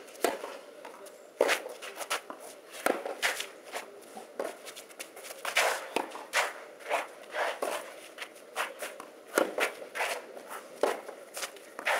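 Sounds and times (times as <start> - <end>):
shoes scuffing on clay: 0.1 - 11.9
tennis ball bouncing: 0.2 - 0.5, 9.3 - 9.8
tennis ball struck by rackets: 0.2 - 0.5, 2.8 - 3.2, 9.3 - 10.1.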